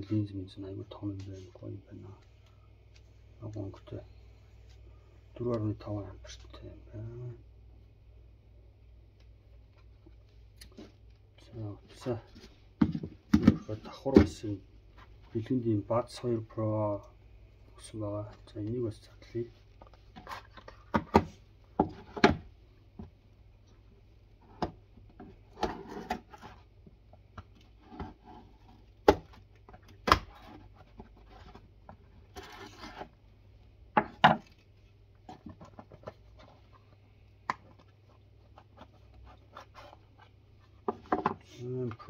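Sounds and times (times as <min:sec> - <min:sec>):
cardboard scraping and rustling: 0:30.3 - 0:33.2.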